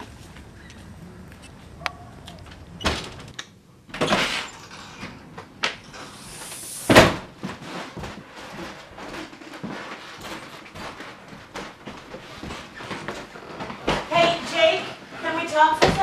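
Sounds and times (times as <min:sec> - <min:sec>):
rush of noise: 0:06.0 - 0:07.2.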